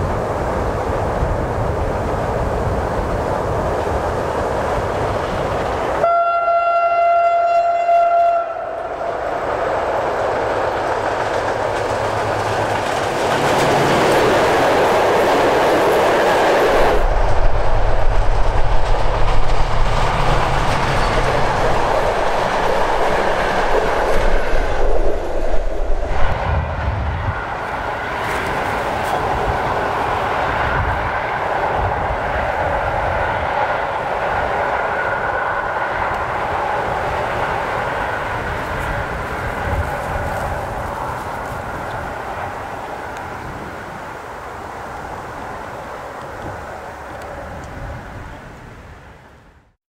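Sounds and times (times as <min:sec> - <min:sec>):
locomotive horn blast: 0:06.0 - 0:08.9
train wheels clacking on rail joints: 0:09.3 - 0:26.2.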